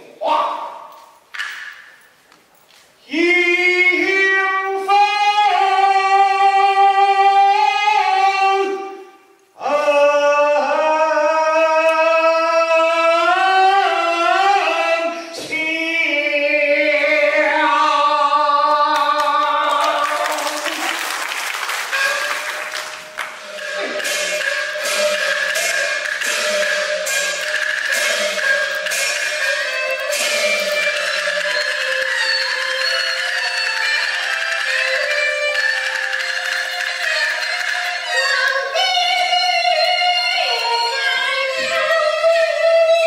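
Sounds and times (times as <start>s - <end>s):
percussion clatter: 1.2s - 2.7s, 19.7s - 43.0s
opera singing voice: 3.0s - 21.2s, 37.6s - 43.0s.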